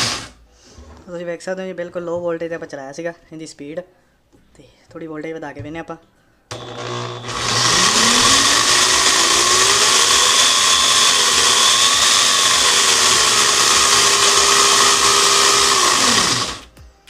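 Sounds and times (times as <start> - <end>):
electric angle grinder whining: 0.0 - 0.4, 6.5 - 16.7
chainsaw chain running: 6.5 - 16.6.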